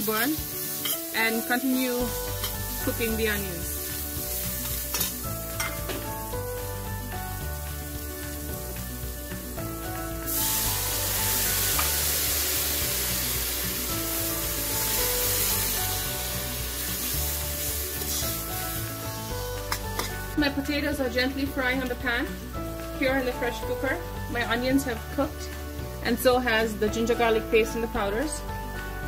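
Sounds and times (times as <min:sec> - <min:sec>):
water hissing in a hot pot: 0:00.0 - 0:05.6, 0:06.2 - 0:20.1
onions sizzling in hot oil: 0:00.0 - 0:28.3
background music: 0:00.0 - 0:29.0.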